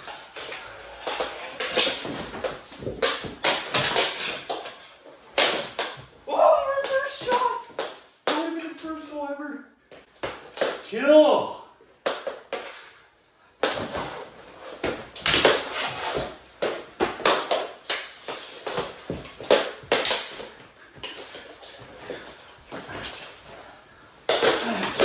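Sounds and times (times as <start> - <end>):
hockey sticks clacking: 0.0 - 9.0, 10.1 - 11.0, 12.0 - 12.9, 13.6 - 23.4, 24.2 - 25.0.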